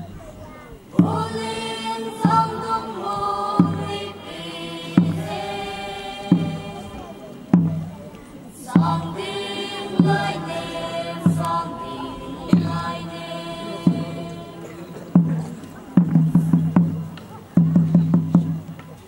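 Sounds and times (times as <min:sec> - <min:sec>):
voices chanting in unison: 0:00.9 - 0:17.6
deep drum beat: 0:01.0 - 0:18.8.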